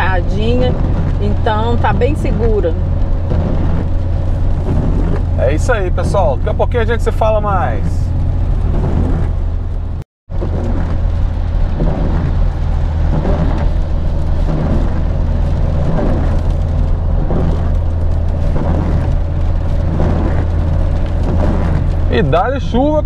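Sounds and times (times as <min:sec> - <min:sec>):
engine and tyres rumble: 0:00.0 - 0:23.0
hiss of spray and rain: 0:10.3 - 0:23.0.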